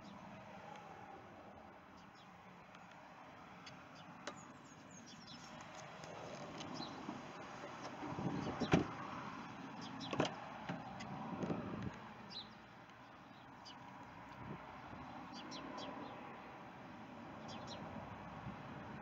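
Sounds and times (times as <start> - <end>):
truck door clicks and knocks: 8.5 - 9.0.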